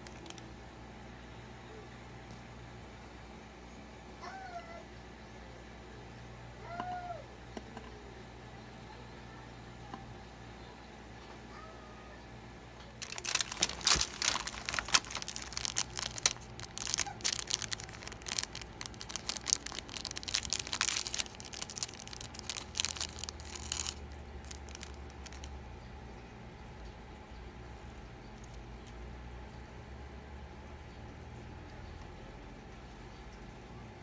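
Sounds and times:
plastic wrapper crinkling and tearing: 0:00.0 - 0:00.4, 0:13.0 - 0:25.6, 0:27.8 - 0:28.6.

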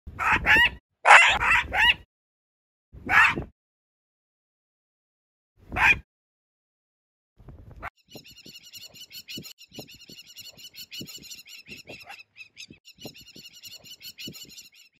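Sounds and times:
high chirping animal calls: 0:08.0 - 0:15.0.

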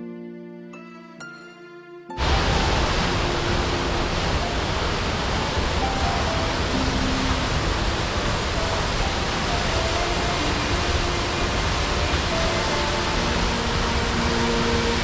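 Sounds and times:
rushing water: 0:02.2 - 0:15.0
faint soft music: 0:03.0 - 0:15.0.

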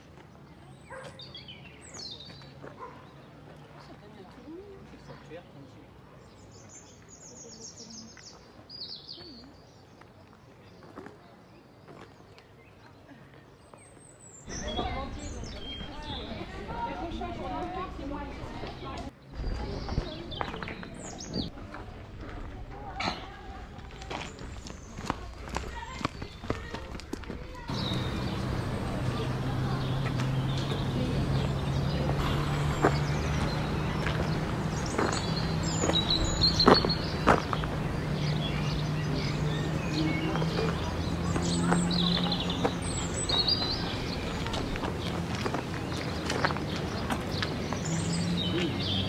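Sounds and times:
faint outdoor ambience: 0:00.0 - 0:49.0
engine running steadily: 0:27.7 - 0:49.0.

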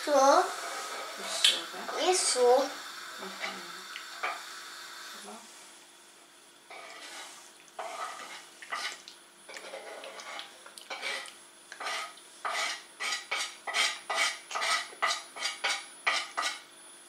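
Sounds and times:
spoon scraping a pot: 0:00.6 - 0:01.4, 0:06.7 - 0:16.6.

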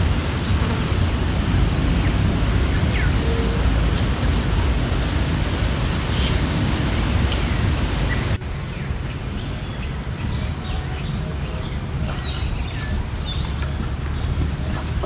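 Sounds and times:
wind rumble on microphone: 0:00.0 - 0:15.0
bird chirps: 0:07.3 - 0:14.9.

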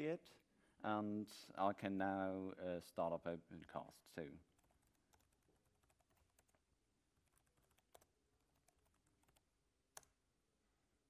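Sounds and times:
computer keyboard keystrokes: 0:04.6 - 0:06.6, 0:07.2 - 0:09.4.

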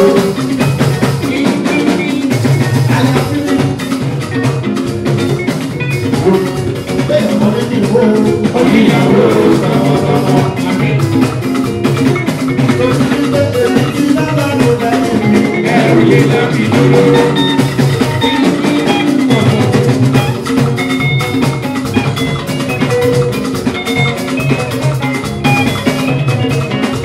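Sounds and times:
man singing: 0:00.0 - 0:04.2, 0:06.1 - 0:11.6, 0:12.5 - 0:20.0
live rock band: 0:00.0 - 0:27.0.

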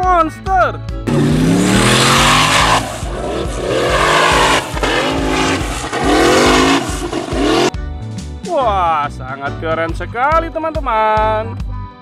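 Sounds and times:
buggy engine revving: 0:01.1 - 0:07.8.

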